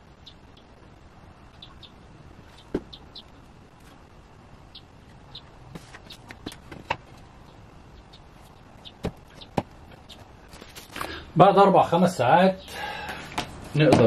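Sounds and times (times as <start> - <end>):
faint high chirps: 1.4 - 3.6.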